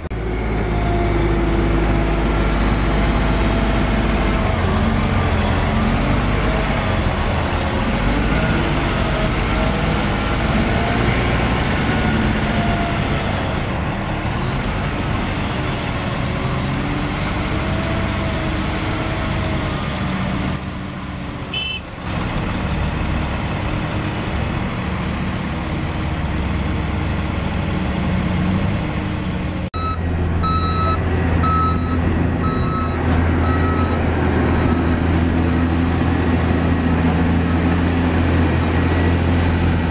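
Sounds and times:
heavy diesel engines running: 0.0s - 39.9s
reversing alarm beeping: 29.8s - 34.0s.

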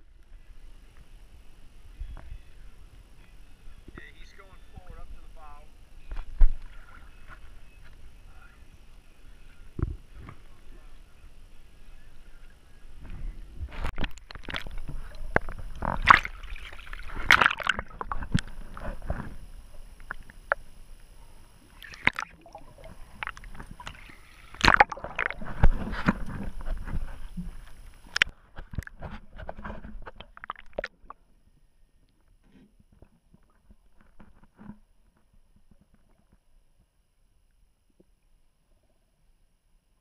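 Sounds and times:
faint underwater hush: 0.0s - 32.6s
water gurgling: 13.0s - 31.3s
seawater sloshing and splashing: 13.9s - 20.3s, 21.7s - 27.6s
water slapping: 13.9s - 20.6s, 21.7s - 28.9s, 30.2s - 31.1s.

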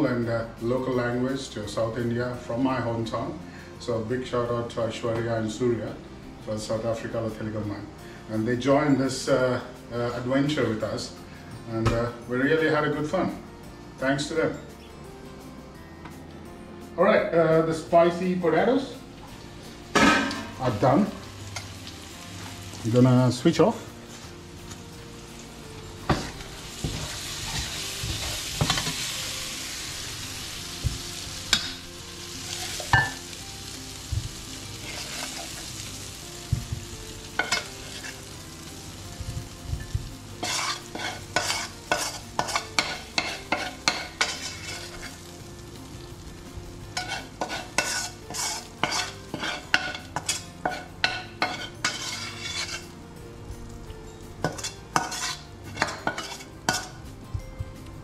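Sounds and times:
potatoes sizzling in frying pan: 19.3s - 57.2s
metal spoon scraping pan: 34.8s - 35.6s, 37.4s - 38.2s, 40.4s - 45.2s, 47.0s - 53.0s, 54.4s - 57.0s.

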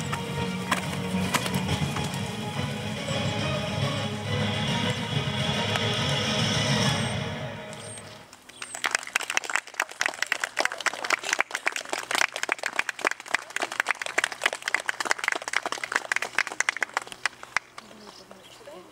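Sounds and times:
crowd applauding: 8.4s - 18.2s.

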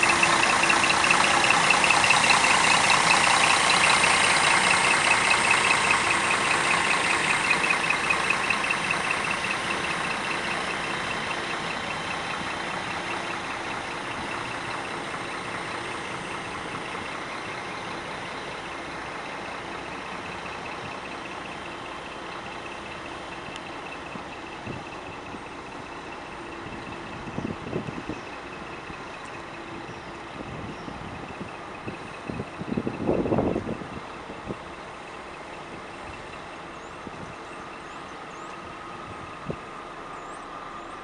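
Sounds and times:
diesel engine idling: 0.0s - 41.0s.

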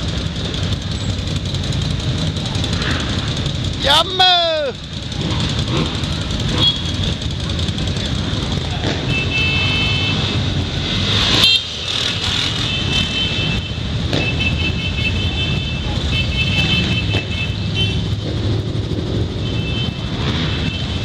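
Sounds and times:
quad bike engines idling: 0.0s - 10.6s.

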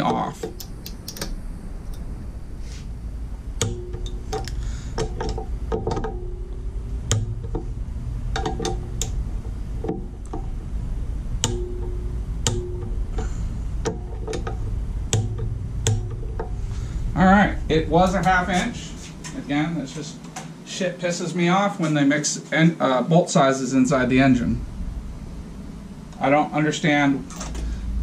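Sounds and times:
low steady hum: 0.0s - 28.0s
ratchet clicking: 3.6s - 7.7s, 11.4s - 16.7s
metallic rings: 3.6s - 10.7s, 11.3s - 17.2s.

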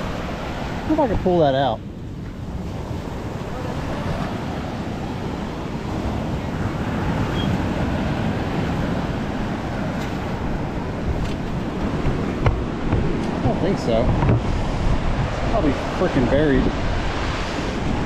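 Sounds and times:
surf washing: 0.0s - 18.0s
wind rumbling on microphone: 0.0s - 18.0s.

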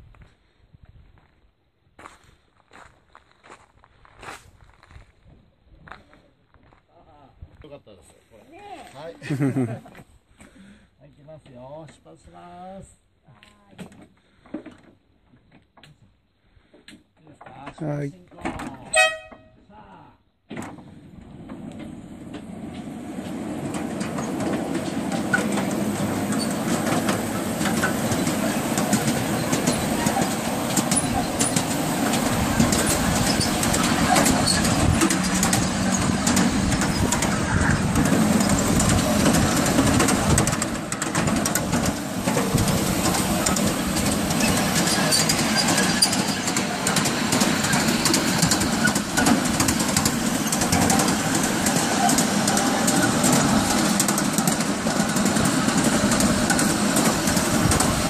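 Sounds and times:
miniature train rattling rumble: 9.0s - 9.8s, 20.6s - 58.0s
wheels clicking on track: 20.6s - 58.0s.

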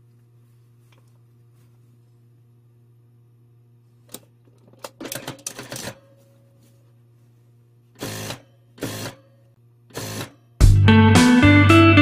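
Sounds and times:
sewing machine stitching: 8.0s - 9.3s, 9.9s - 10.4s.

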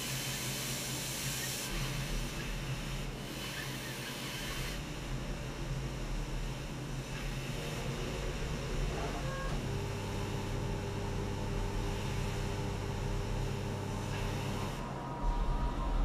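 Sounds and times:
low electric hum: 4.8s - 16.0s.

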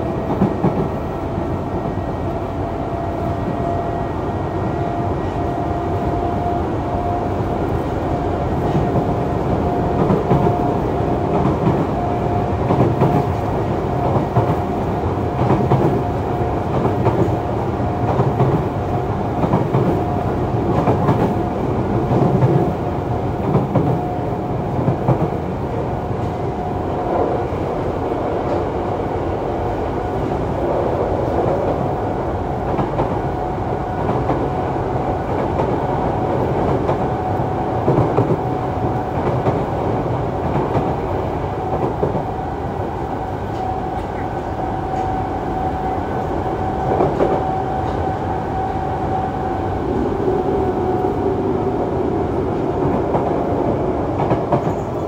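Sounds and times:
train wheel and track rumble: 0.0s - 55.0s.

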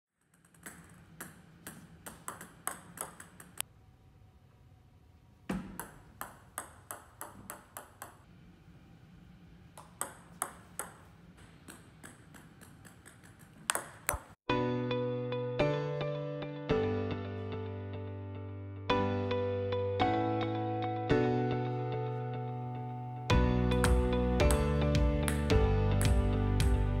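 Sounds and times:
ball bouncing on table: 0.2s - 3.6s, 5.5s - 8.3s, 9.8s - 14.4s
table tennis ball hits: 0.2s - 3.6s, 5.5s - 8.3s, 9.8s - 14.4s, 23.8s - 26.8s.

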